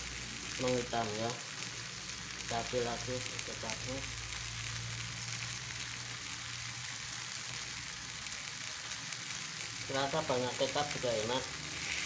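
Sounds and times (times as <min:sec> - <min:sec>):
fish sizzling on grill: 0:00.0 - 0:12.0.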